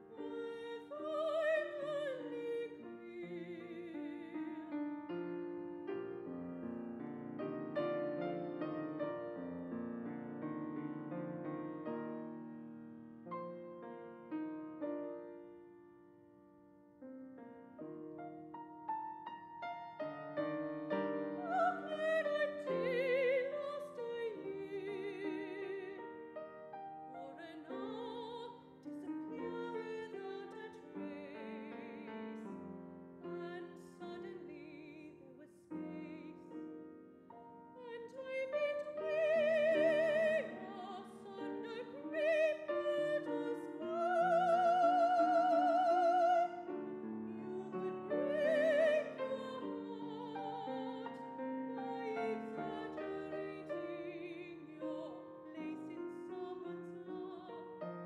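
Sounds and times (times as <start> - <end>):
operatic soprano singing: 0.0 - 5.1, 20.9 - 26.4, 27.1 - 32.6, 33.2 - 36.8, 37.6 - 58.0
grand piano accompaniment: 0.0 - 58.0.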